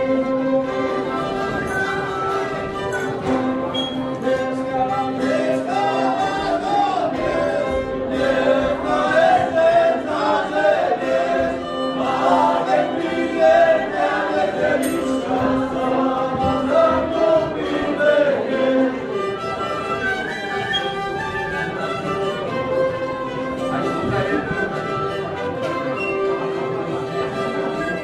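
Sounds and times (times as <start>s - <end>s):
group of voices singing: 3.8s - 19.2s.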